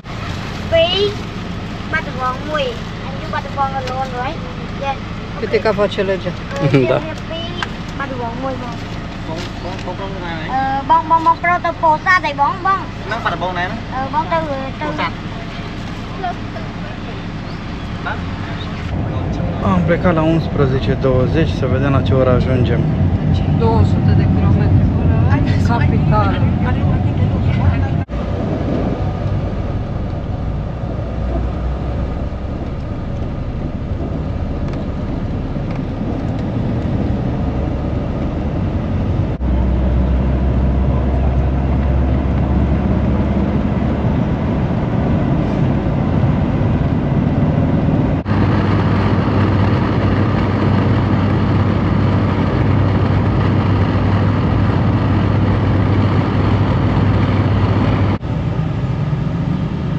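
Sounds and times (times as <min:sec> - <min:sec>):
bus engine and tyres rumbling: 0:00.0 - 0:59.9.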